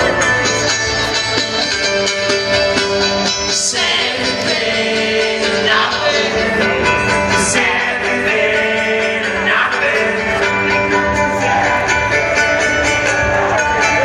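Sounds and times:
distorted electric guitar: 0:00.0 - 0:14.0
man singing: 0:03.4 - 0:14.0.

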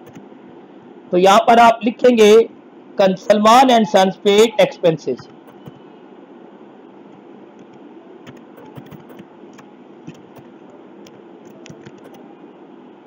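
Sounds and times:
low background hum: 0:00.0 - 0:13.0
keyboard key clicks: 0:07.6 - 0:12.2.

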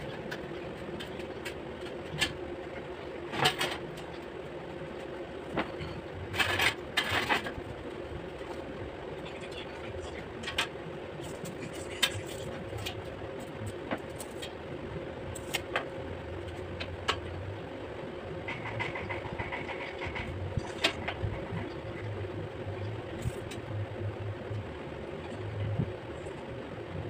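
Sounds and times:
steady motor hum: 0:00.0 - 0:27.0.

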